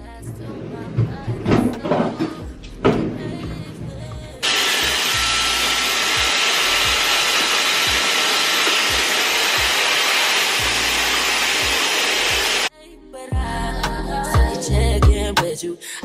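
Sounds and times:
background music with beat: 0:00.0 - 0:04.4, 0:13.3 - 0:16.0
hair dryer blowing: 0:04.4 - 0:12.7.

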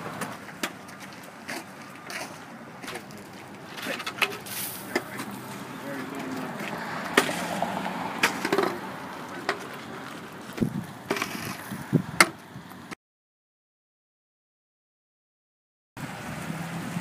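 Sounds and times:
shovel scraping on asphalt: 0:01.0 - 0:11.8.

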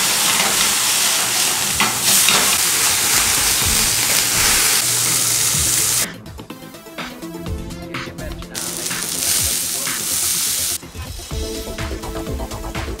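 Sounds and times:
sizzling and burning flame: 0:00.0 - 0:06.1, 0:08.6 - 0:12.6.

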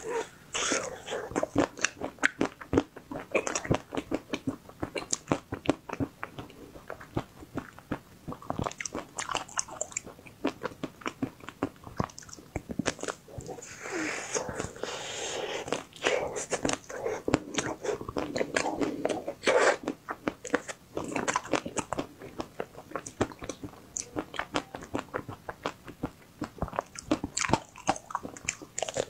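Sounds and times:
crunchy chewing: 0:00.0 - 0:29.0
soft hissing mouth noise: 0:13.4 - 0:19.9.

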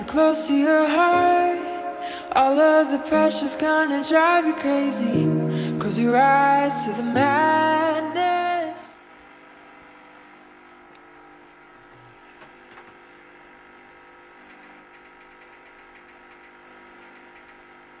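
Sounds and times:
woman singing: 0:00.0 - 0:09.0
faint steady hum: 0:00.0 - 0:18.0
thin high whine: 0:00.0 - 0:18.0.

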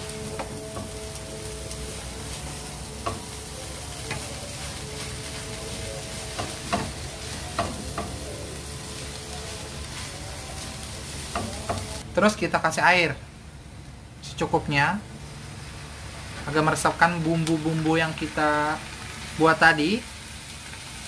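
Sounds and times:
noodles sizzling in a wok: 0:00.0 - 0:12.1, 0:15.0 - 0:21.0.

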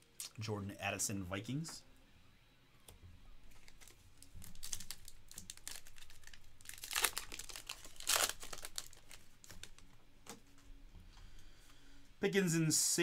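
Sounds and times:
foil wrapper crackling: 0:03.5 - 0:09.9.

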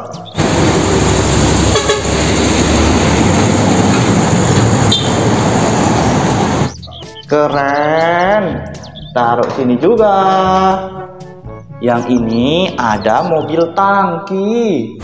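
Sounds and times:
heavy truck engine rumbling: 0:00.3 - 0:07.1.

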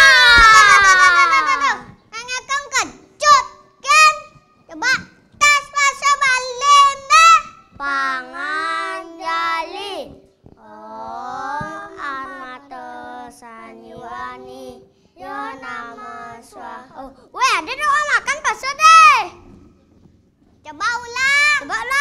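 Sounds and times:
child singing: 0:05.5 - 0:18.7.

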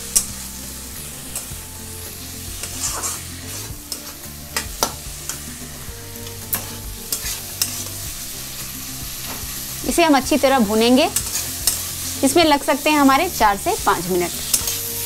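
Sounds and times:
food sizzling in oil: 0:00.0 - 0:15.0
metal spatula scraping pan: 0:02.5 - 0:08.0, 0:10.8 - 0:12.2.

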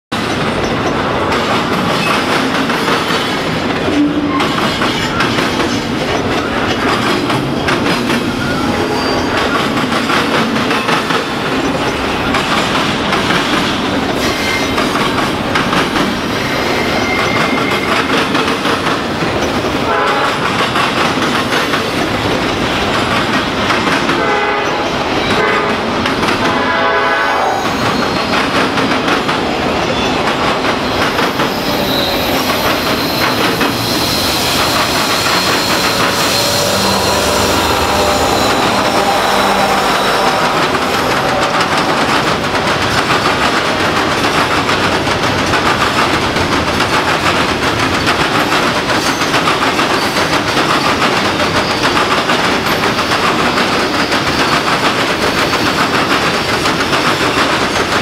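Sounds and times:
train rumbling past: 0:00.2 - 0:58.0
diesel locomotive horn blasts: 0:19.9 - 0:20.4, 0:24.2 - 0:27.7, 0:35.2 - 0:42.3.

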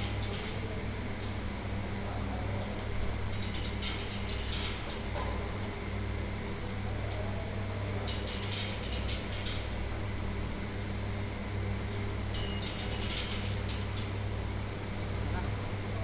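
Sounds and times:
dishwasher humming: 0:00.0 - 0:10.9.

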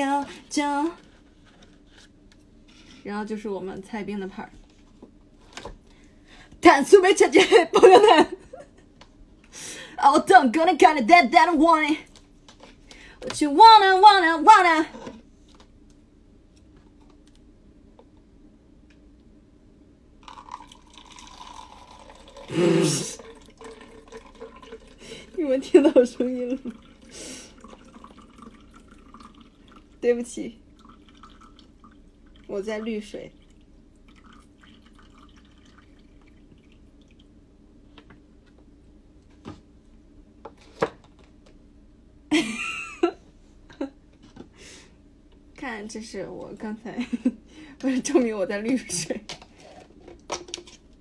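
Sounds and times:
water trickling from paper cup: 0:20.2 - 0:37.3.

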